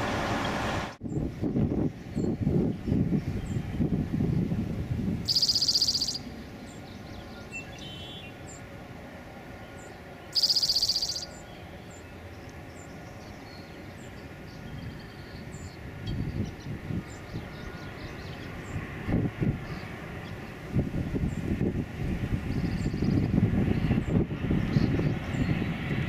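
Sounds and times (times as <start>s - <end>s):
wind rumble on microphone: 0.0s - 8.6s, 12.7s - 26.0s
distant jet airliner rumble: 0.0s - 26.0s
bird high trills: 5.2s - 8.6s, 9.8s - 18.5s
faint bird chirps: 5.3s - 8.4s, 9.7s - 18.5s.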